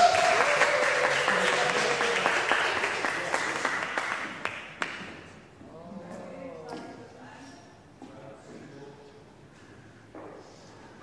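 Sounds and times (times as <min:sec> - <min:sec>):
single claps: 0:00.0 - 0:05.2
small group applauding: 0:00.0 - 0:05.3.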